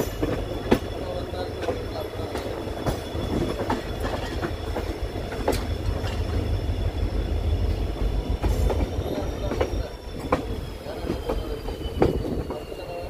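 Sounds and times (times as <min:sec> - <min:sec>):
train rumbling on track: 0:00.0 - 0:13.0.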